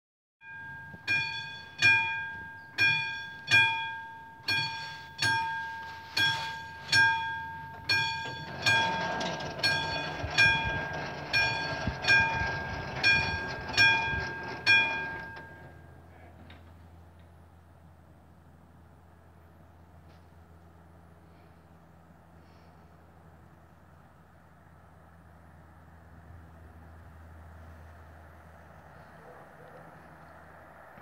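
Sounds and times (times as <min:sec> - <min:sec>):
level-crossing warning bell: 0:00.4 - 0:16.2.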